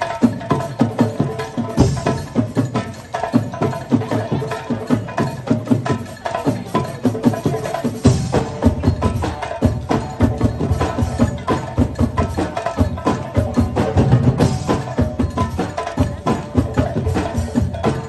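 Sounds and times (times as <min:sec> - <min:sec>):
percussion band playing drums: 0:00.0 - 0:18.0.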